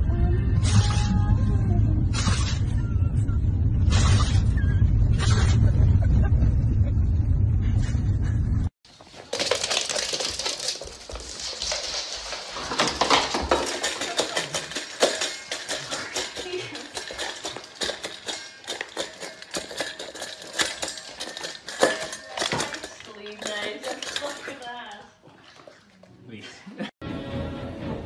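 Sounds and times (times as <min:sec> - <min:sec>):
dog clicking on wooden floor: 0:09.0 - 0:25.0
dog knocking metal bowl: 0:09.2 - 0:25.0.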